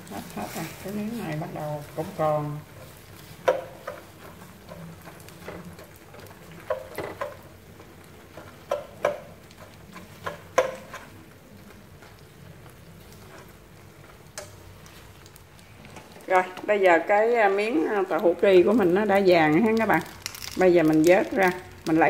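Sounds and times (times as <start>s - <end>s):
faint sizzle of frying oil: 0.0s - 22.0s
fork and chopsticks tapping pan: 3.4s - 4.8s, 8.4s - 11.1s.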